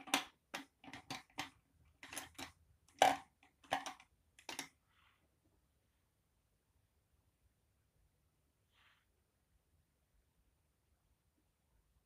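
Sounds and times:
small objects clicking and clattering: 0.0 - 4.7.

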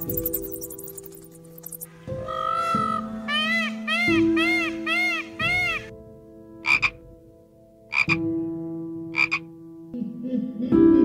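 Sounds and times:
peacock calling: 0.0 - 5.9
background music: 0.0 - 11.0.

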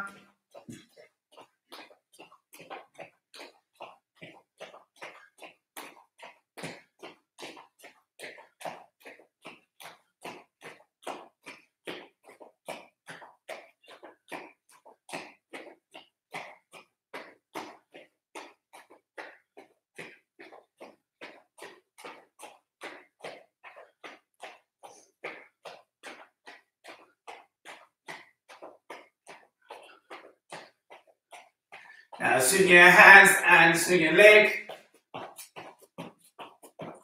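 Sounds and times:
bare footfalls on foam mats: 34.6 - 37.0.

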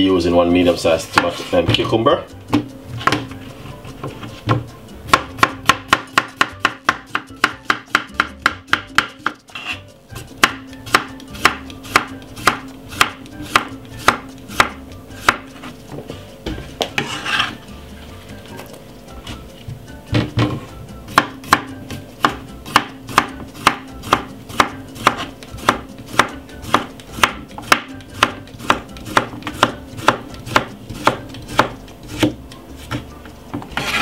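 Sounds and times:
knife slicing on chopping board: 16.8 - 17.6, 22.2 - 33.0.

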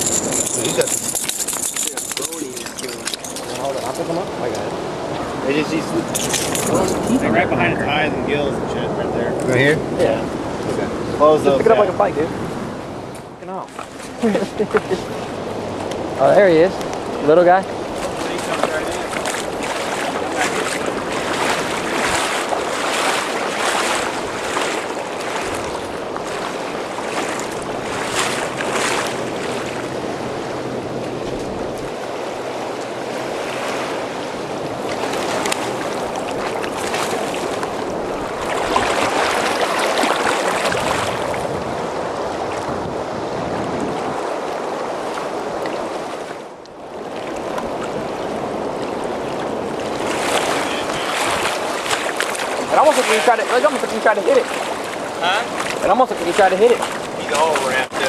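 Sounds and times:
churning river water rushing: 0.0 - 58.0
wind buffeting microphone: 0.0 - 58.0.

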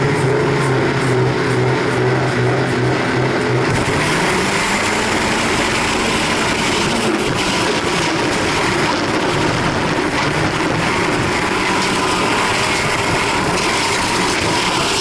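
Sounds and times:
car engine accelerating hard: 0.0 - 15.0.

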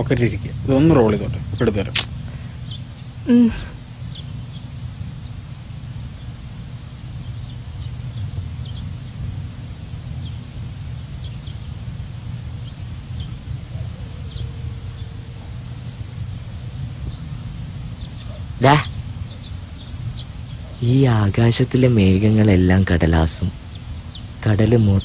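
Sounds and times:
faint scattered chirps: 0.0 - 25.0
insects trilling: 0.0 - 25.0
low outdoor rumble: 0.0 - 25.0.

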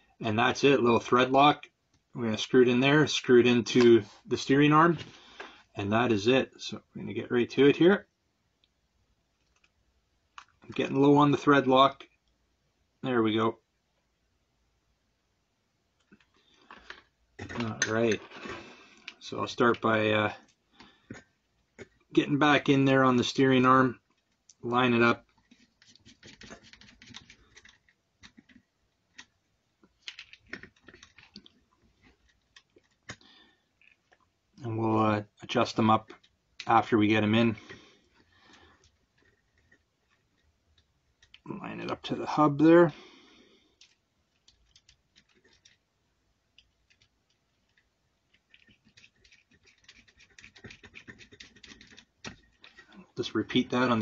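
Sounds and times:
small metal parts clicking: 29.9 - 33.2, 43.8 - 45.8, 46.5 - 53.0.

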